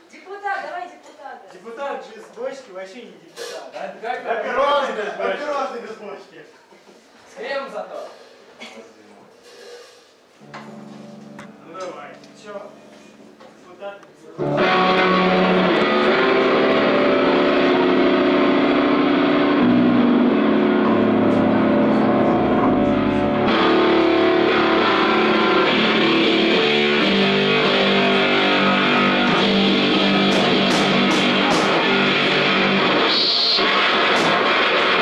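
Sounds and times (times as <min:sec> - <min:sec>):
guitar: 0:10.3 - 0:13.6, 0:14.4 - 0:35.0
band playing loud live music: 0:14.4 - 0:35.0.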